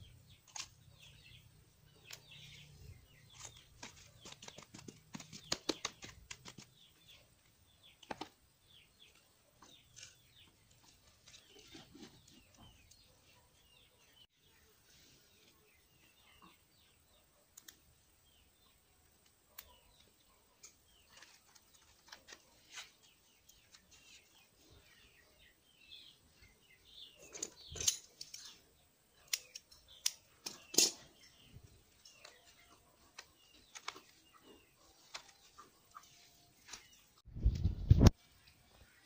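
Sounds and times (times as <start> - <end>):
hands rustling plant and soil: 32.2 - 37.0.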